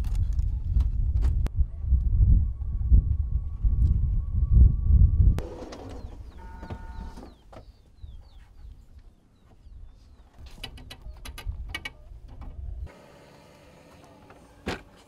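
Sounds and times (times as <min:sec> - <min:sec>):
low rumble: 0:00.1 - 0:05.4
bird chirps: 0:05.8 - 0:10.4.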